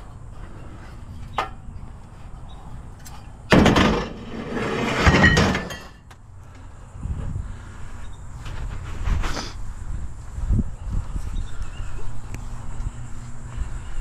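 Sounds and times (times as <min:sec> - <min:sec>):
scrap metal crashing: 0:03.5 - 0:06.0.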